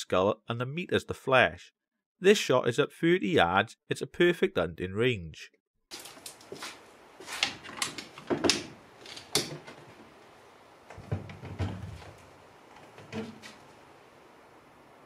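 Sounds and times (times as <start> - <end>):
soft dull knocks: 10.9 - 13.6.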